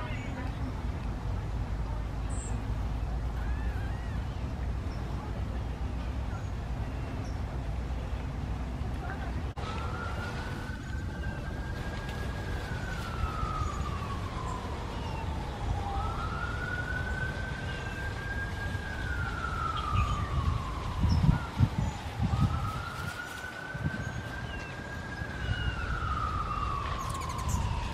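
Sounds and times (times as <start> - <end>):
emergency vehicle siren wailing: 9.5 - 27.9.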